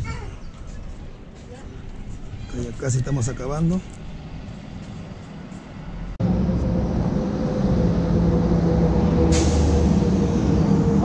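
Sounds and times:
engine humming steadily: 0:03.9 - 0:11.0.

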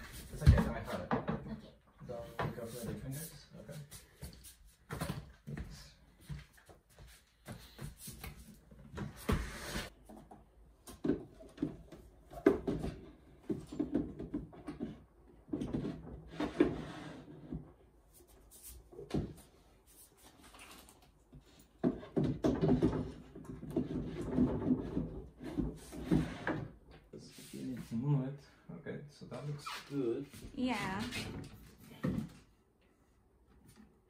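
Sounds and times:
furniture parts knocking and scraping: 0:21.8 - 0:26.9.

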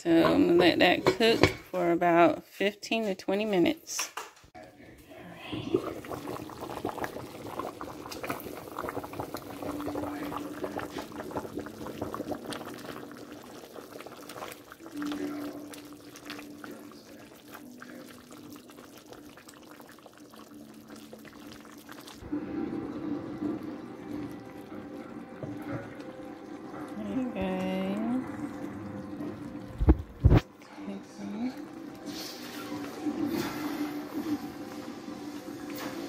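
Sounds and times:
broth bubbling at a boil: 0:05.1 - 0:30.6, 0:31.3 - 0:36.0
low steady hum: 0:22.2 - 0:32.0.

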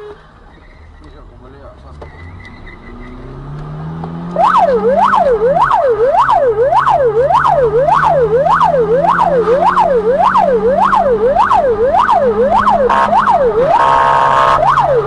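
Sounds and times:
horn blasts: 0:00.0 - 0:00.3, 0:12.7 - 0:15.0
siren yelping: 0:04.2 - 0:15.0.

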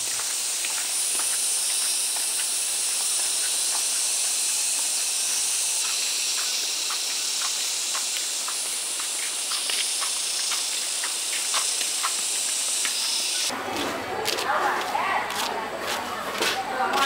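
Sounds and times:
high-pitched hiss: 0:00.0 - 0:13.5.

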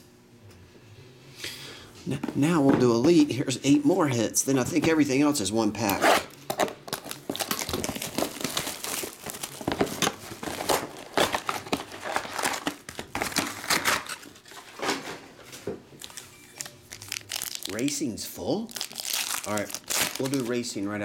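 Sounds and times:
shrink wrap crinkling and tearing: 0:06.9 - 0:14.5, 0:16.0 - 0:20.9.

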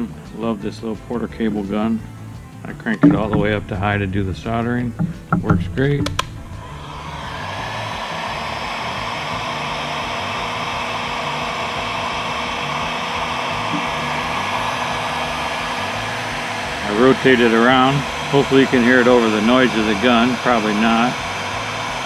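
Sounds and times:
faint hum: 0:01.8 - 0:18.5
heat gun switch click: 0:02.9 - 0:07.1
heat gun blowing: 0:03.0 - 0:22.0.

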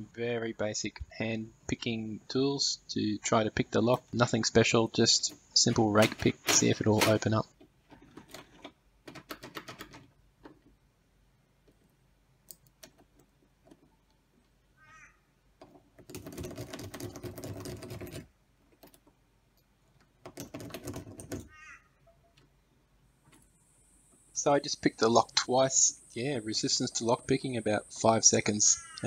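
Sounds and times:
door knob turning and latch rattling: 0:05.7 - 0:10.8, 0:15.6 - 0:19.2, 0:19.9 - 0:21.5
lock pick rattling and clicking: 0:05.7 - 0:10.8, 0:15.6 - 0:21.5.

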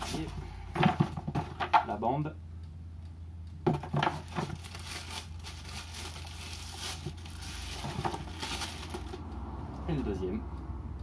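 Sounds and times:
plastic wrap crinkling: 0:03.8 - 0:09.2.

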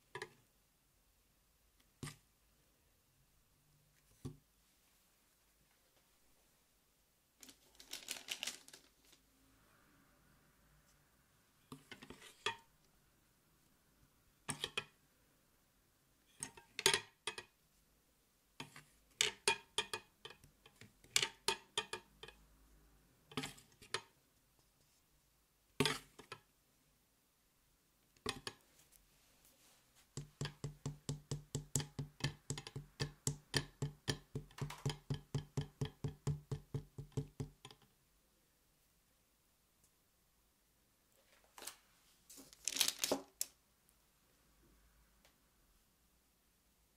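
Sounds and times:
utensils tapping a steel bowl: 0:30.2 - 0:37.8.

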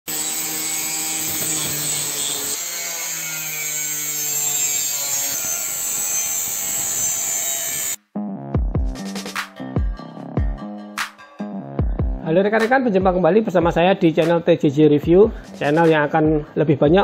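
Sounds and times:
angle grinder cutting steel: 0:00.1 - 0:08.0.

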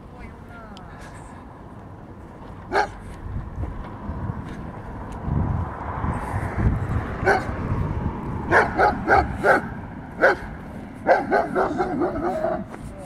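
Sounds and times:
puppy barking: 0:02.7 - 0:03.0, 0:07.2 - 0:07.5, 0:08.5 - 0:12.7.

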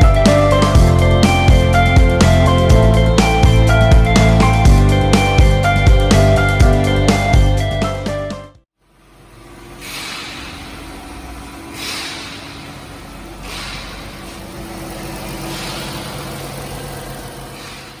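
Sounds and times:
engine hiss: 0:08.8 - 0:18.0
van engine idling: 0:08.8 - 0:18.0.

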